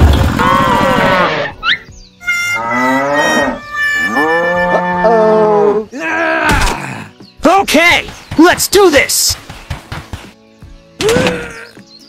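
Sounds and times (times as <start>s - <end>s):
cow mooing: 2.6s - 5.8s.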